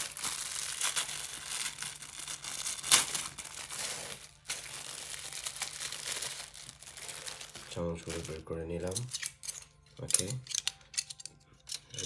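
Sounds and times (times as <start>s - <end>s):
wrapper crinkling and rustling: 0.0s - 9.6s.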